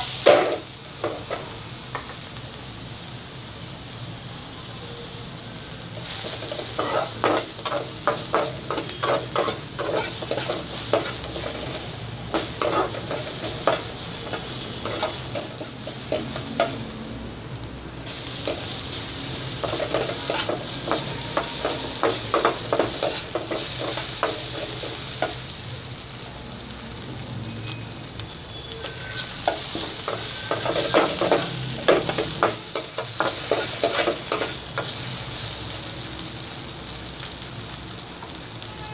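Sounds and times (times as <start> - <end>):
food sizzling in a wok: 0.0 - 38.9
metal utensil scraping pan: 6.0 - 16.8, 19.6 - 25.4, 28.7 - 35.0.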